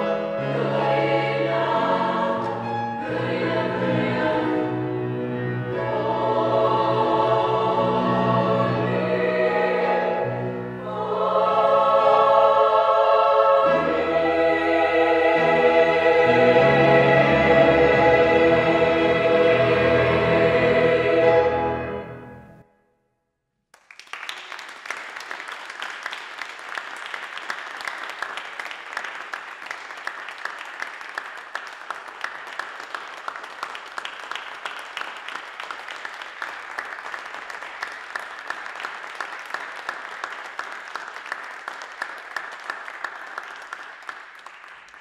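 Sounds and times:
audience applause: 0:23.8 - 0:45.0.

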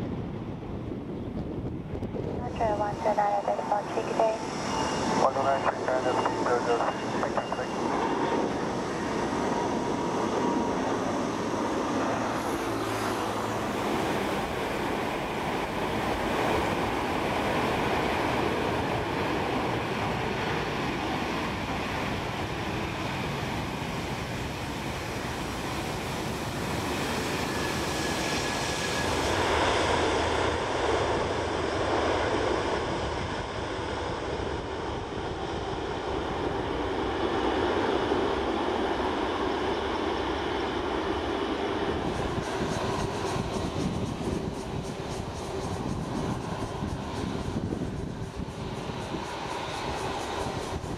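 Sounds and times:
jet engine rush: 0:00.0 - 0:50.9.

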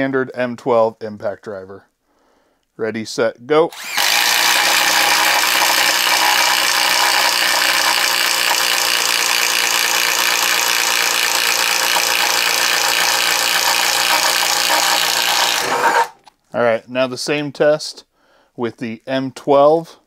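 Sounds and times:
impact driver rattling: 0:03.7 - 0:16.3.

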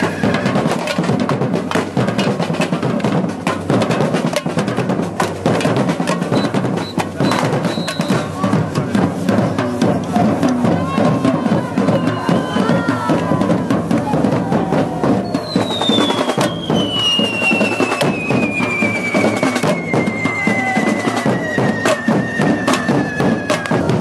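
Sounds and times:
drum band beating rhythm: 0:00.0 - 0:24.0
long falling whistle: 0:15.2 - 0:24.0.

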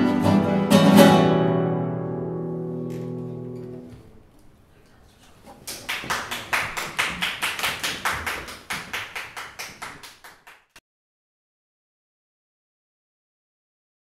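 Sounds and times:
small audience applause: 0:05.5 - 0:10.8.

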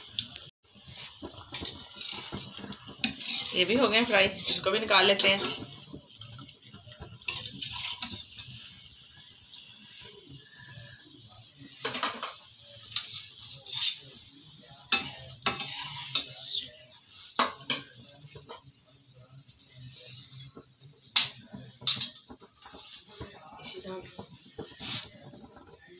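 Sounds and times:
oil sizzling: 0:00.0 - 0:25.9
tongs clinking on pan: 0:21.2 - 0:22.3.

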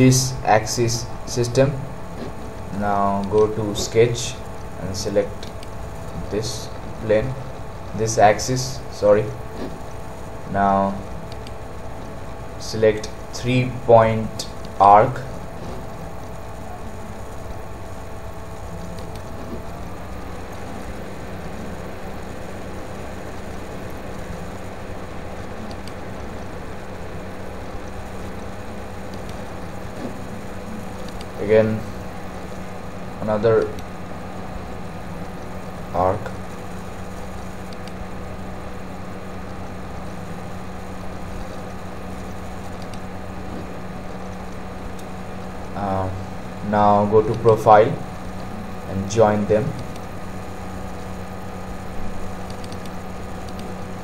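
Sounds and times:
low hum and hiss: 0:00.0 - 0:54.0
faint clicks: 0:11.0 - 0:12.2, 0:25.4 - 0:26.7, 0:27.7 - 0:31.4, 0:36.5 - 0:38.0, 0:41.3 - 0:43.6, 0:49.7 - 0:50.2, 0:52.4 - 0:53.8.

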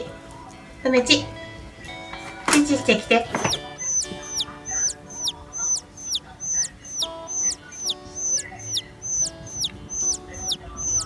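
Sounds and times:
soft background music: 0:00.0 - 0:11.0
cartoon chick peeping: 0:03.5 - 0:11.0.

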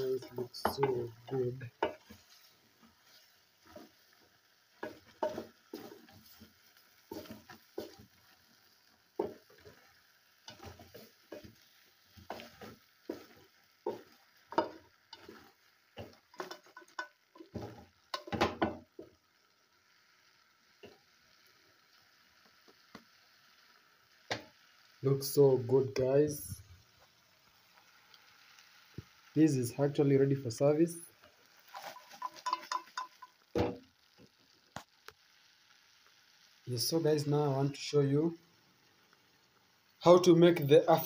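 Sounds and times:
wooden spatula scraping a metal pot: 0:00.0 - 0:04.2, 0:04.8 - 0:08.4, 0:10.5 - 0:18.4, 0:31.6 - 0:33.4
faint sizzle of stew: 0:00.0 - 0:41.0.

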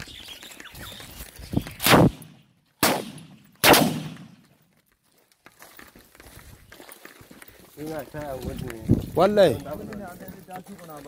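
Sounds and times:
gunshots: 0:01.8 - 0:04.4.

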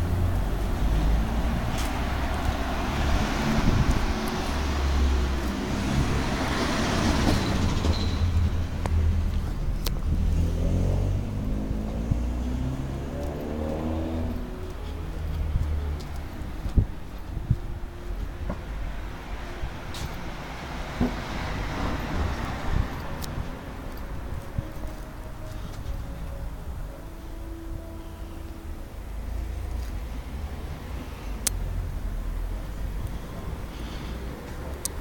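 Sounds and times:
car passing: 0:00.0 - 0:28.8
low traffic rumble: 0:00.0 - 0:35.0
engine revving: 0:09.6 - 0:14.7.

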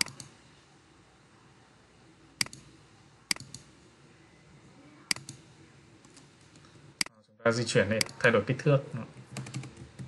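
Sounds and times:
computer mouse clicks: 0:00.0 - 0:00.4, 0:02.4 - 0:02.7, 0:03.3 - 0:03.7, 0:05.1 - 0:05.4, 0:09.3 - 0:10.0.

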